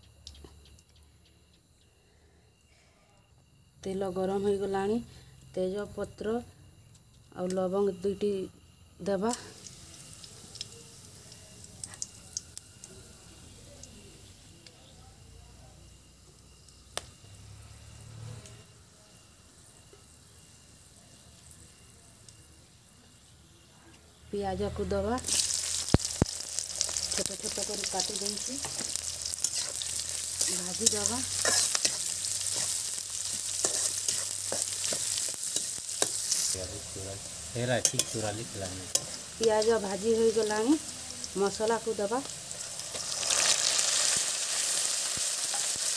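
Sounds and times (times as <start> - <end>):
spices sizzling in hot oil: 3.5 - 45.9
small crackles: 9.2 - 14.8, 25.2 - 36.6, 38.9 - 45.9
metal spatula scraping pan: 31.3 - 36.5.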